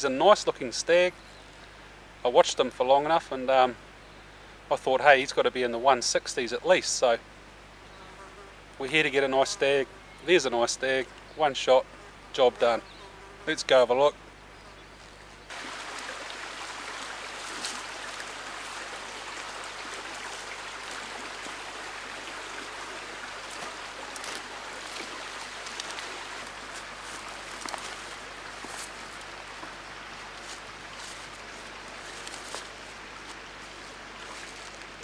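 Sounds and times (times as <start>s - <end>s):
creek water rushing: 15.5s - 35.0s.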